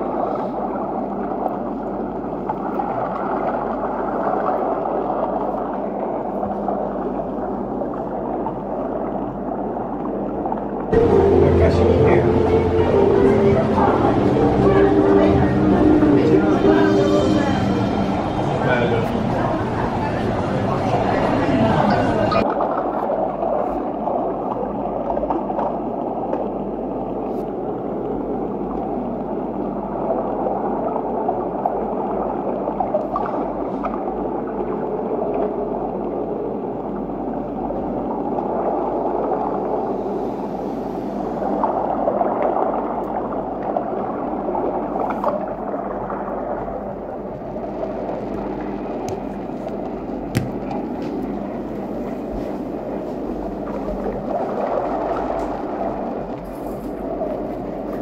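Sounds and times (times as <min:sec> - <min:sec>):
bubbling and rushing water: 0:00.0 - 0:58.0.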